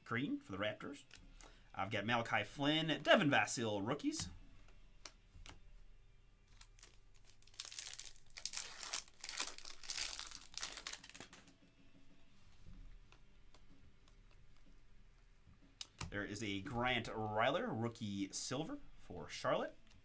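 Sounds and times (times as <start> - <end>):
foil wrapper tearing and crinkling: 6.5 - 11.3
card handling: 6.5 - 11.5.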